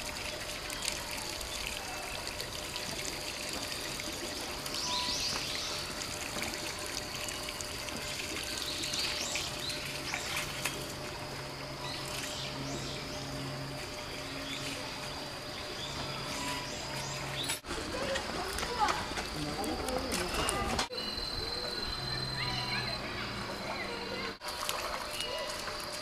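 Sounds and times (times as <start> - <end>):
water jet splashing on stone paving: 0.0 - 12.5, 16.5 - 20.8.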